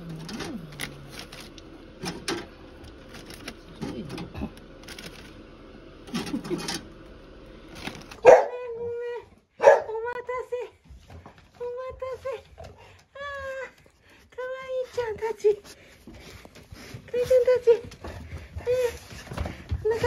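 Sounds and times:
dogs crunching food: 0.0s - 8.5s.

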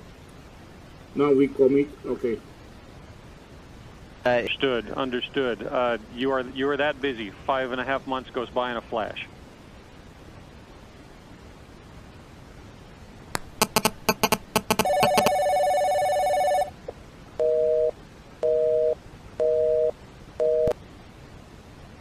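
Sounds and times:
keypad dialing tones: 13.4s - 16.7s
short telephone beeps: 13.6s - 16.7s
held telephone tone: 13.6s - 16.8s, 17.4s - 20.8s.

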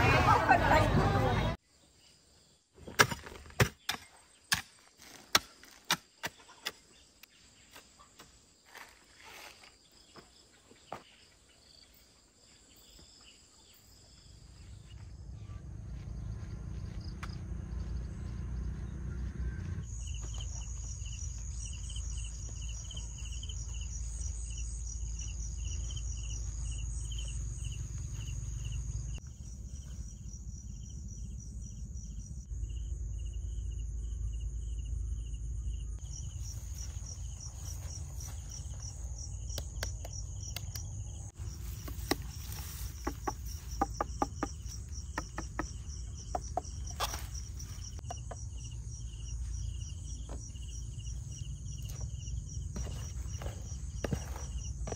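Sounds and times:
insects chirping: 1.6s - 54.9s
steady low rumble: 15.2s - 22.3s.

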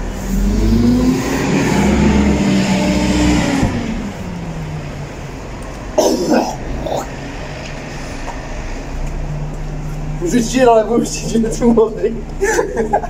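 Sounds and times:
vehicle passing by: 0.0s - 12.6s
cough-like vocal sound: 6.0s - 7.2s.

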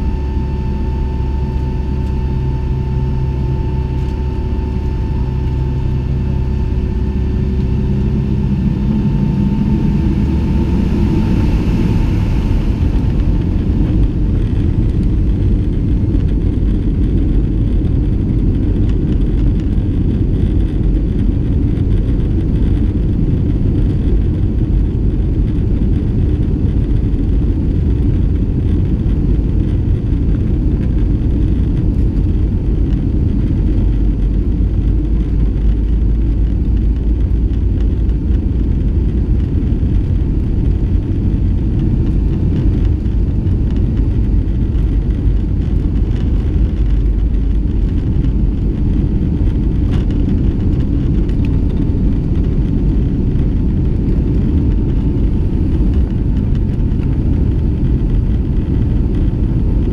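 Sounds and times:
aircraft engine hum and rumble: 0.0s - 59.9s
thin engine whine: 0.0s - 59.9s.

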